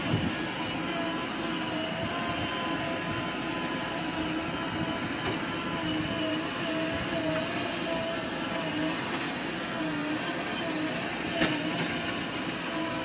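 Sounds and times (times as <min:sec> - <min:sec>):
diesel engine running: 0:00.0 - 0:13.0
hydraulic whine: 0:00.0 - 0:13.0.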